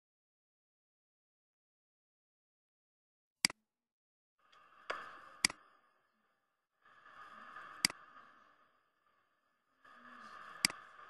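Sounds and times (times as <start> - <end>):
computer mouse clicking: 4.5 - 5.6, 7.8 - 8.1
hiss: 6.8 - 9.2.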